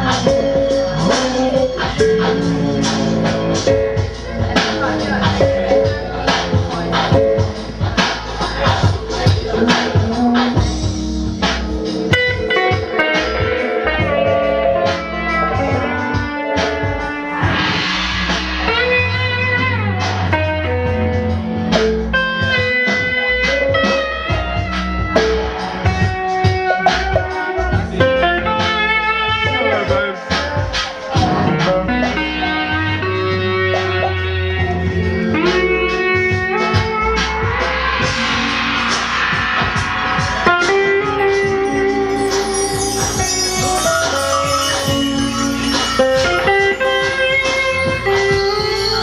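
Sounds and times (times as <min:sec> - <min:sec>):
shimmering metal percussion: 0:00.0 - 0:20.3, 0:36.6 - 0:49.0
drums and hand percussion: 0:00.0 - 0:49.0
steel guitar sustained notes: 0:09.0 - 0:30.0, 0:31.8 - 0:49.0
pedal steel guitar gliding notes: 0:31.8 - 0:49.0.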